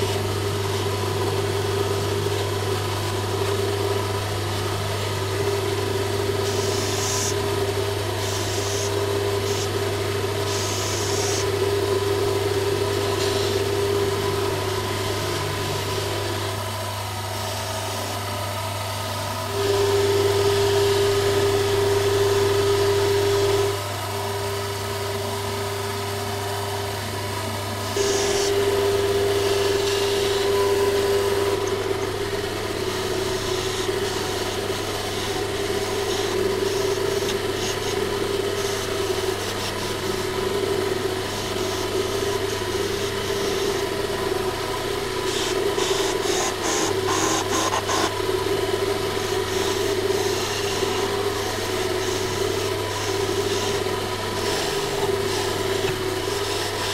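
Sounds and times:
lathe motor hum: 0:00.0 - 0:56.9
chisel scraping hiss on wood: 0:06.4 - 0:07.4, 0:08.2 - 0:09.7, 0:10.4 - 0:11.5, 0:45.3 - 0:48.2, 0:49.2 - 0:56.9.

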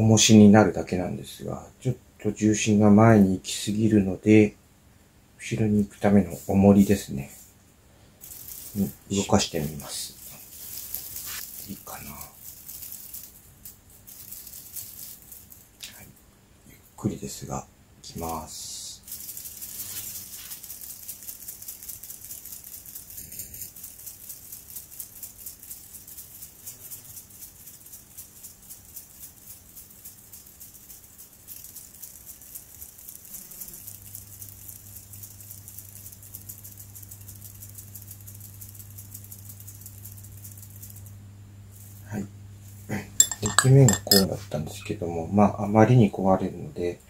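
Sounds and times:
model wings flapping rattle: 0:08.2 - 0:15.8, 0:19.1 - 0:36.5.

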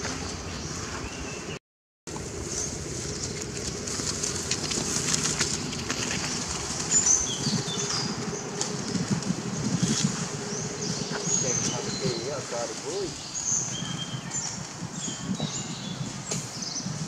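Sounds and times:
rustles and clicks: 0:02.1 - 0:13.2
steady low hum: 0:02.1 - 0:16.1.

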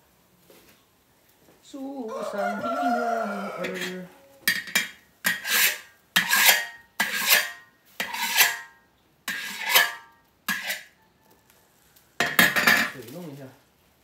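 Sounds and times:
metal spatula scraping wok: 0:03.5 - 0:11.0.

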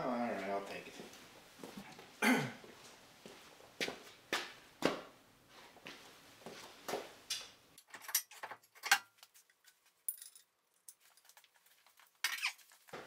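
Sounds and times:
footsteps: 0:00.4 - 0:07.2
metallic clinks and rattles: 0:07.8 - 0:12.8.

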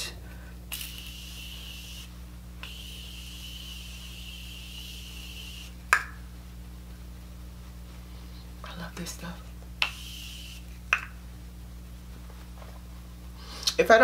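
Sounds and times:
spray bottle hissing: 0:00.7 - 0:05.8, 0:09.8 - 0:10.7.

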